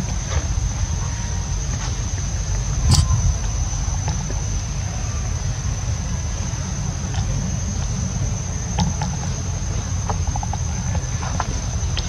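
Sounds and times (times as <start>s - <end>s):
insect drone: 0.0s - 12.0s
low rumble: 2.4s - 5.0s.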